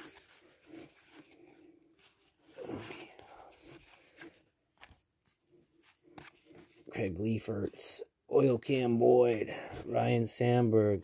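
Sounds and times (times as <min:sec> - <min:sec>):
cardboard cards rustling and sliding: 0:00.0 - 0:07.9.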